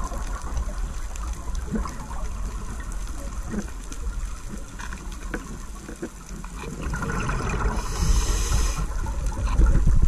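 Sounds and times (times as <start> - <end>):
underwater rumble of moving water: 0.0 - 10.0
hissing rush of bubbles: 6.6 - 9.4.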